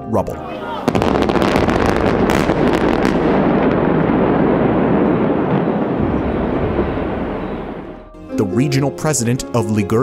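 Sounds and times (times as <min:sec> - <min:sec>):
explosive charge cracks: 0:00.9 - 0:08.1
heavy rumble of collapse: 0:01.0 - 0:08.2.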